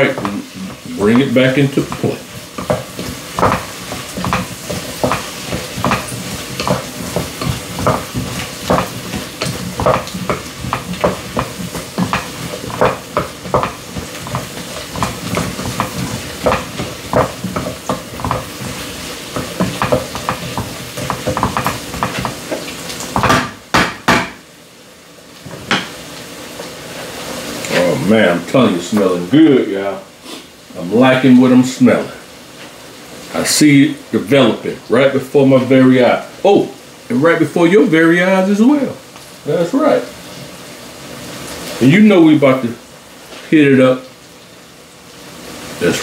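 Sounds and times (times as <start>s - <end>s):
spoon knocking and scraping pot: 0.0s - 24.4s, 25.5s - 26.0s
stew sizzling in a pot: 0.0s - 46.0s.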